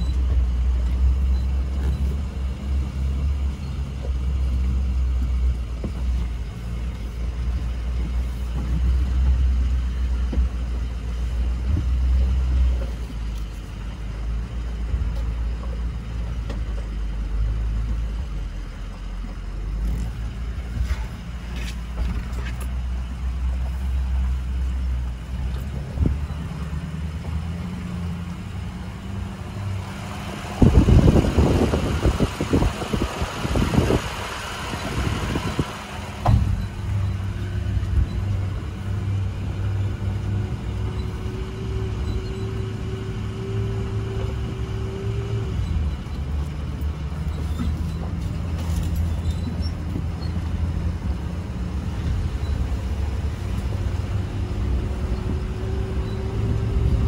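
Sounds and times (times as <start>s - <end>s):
truck engine drone: 0.0s - 57.0s
wind noise on microphone: 29.9s - 57.0s
knocks from rough track: 36.1s - 37.0s.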